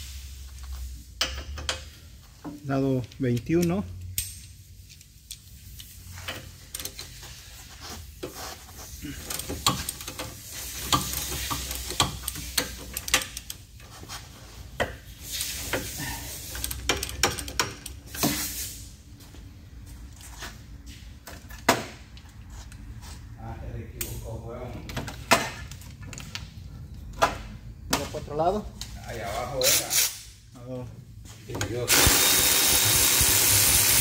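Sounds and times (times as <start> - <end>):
ratchet wrench clicking: 31.9 - 34.0.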